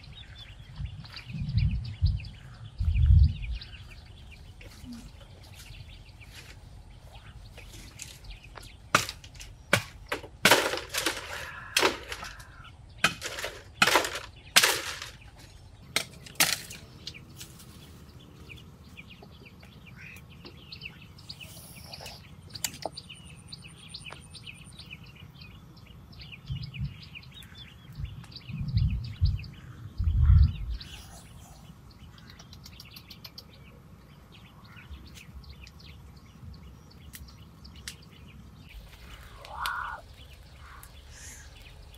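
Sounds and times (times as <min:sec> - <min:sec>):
dull low thumps: 0:00.0 - 0:04.4, 0:28.0 - 0:30.8
birds chirping: 0:00.0 - 0:41.9.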